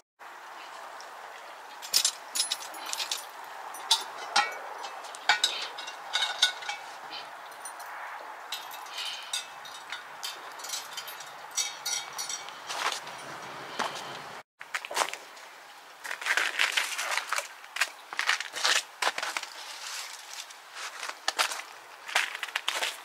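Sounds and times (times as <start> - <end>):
metal pot clinking: 2.0 - 7.8, 8.5 - 12.8.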